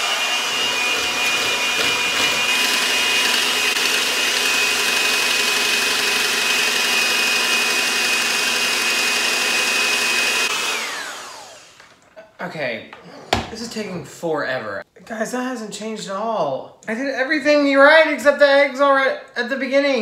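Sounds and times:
electric hand mixer whining: 0:00.0 - 0:12.0.

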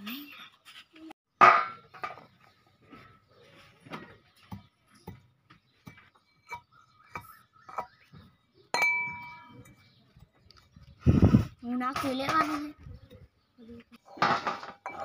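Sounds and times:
steel plate clinking and ringing: 0:08.7 - 0:09.8, 0:14.4 - 0:15.0.

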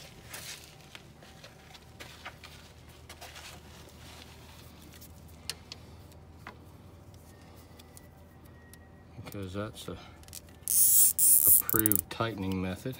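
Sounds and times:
rustling of hoses: 0:00.0 - 0:05.4.

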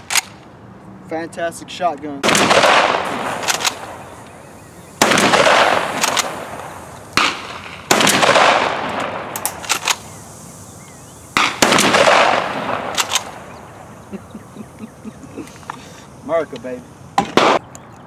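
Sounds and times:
shotgun shots with echo: 0:02.2 - 0:04.2, 0:05.0 - 0:10.0, 0:11.4 - 0:13.5, 0:17.2 - 0:17.6
faint sharp cracks: 0:02.3 - 0:10.1, 0:11.4 - 0:13.6.

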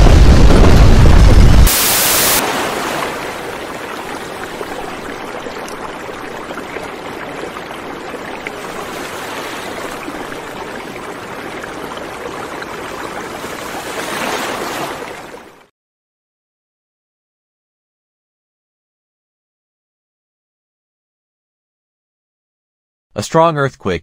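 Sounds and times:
steady rushing noise: 0:00.0 - 0:02.5.

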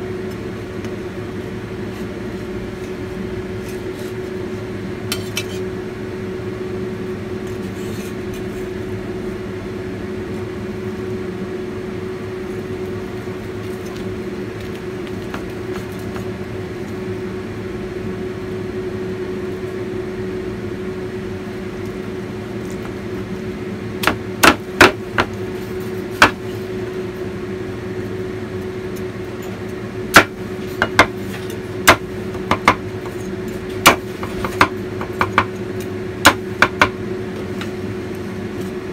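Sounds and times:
cleaver chopping on board: 0:24.0 - 0:25.3, 0:26.2 - 0:26.4, 0:30.2 - 0:31.2, 0:31.8 - 0:32.8, 0:33.8 - 0:35.5, 0:36.3 - 0:37.0.

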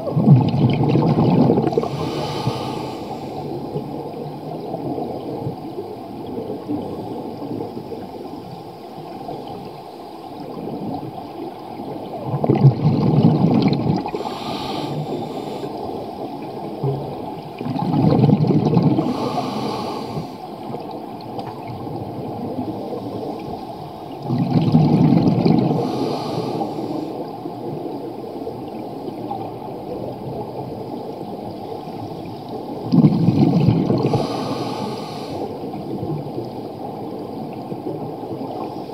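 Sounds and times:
exhaled bubbles rumbling: 0:00.0 - 0:38.9
low underwater rush: 0:00.0 - 0:38.9
regulator hiss: 0:14.1 - 0:15.8.

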